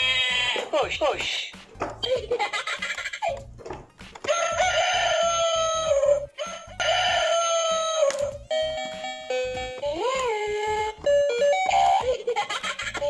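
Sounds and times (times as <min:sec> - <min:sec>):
toy rooster crowing: 0:04.3 - 0:08.4.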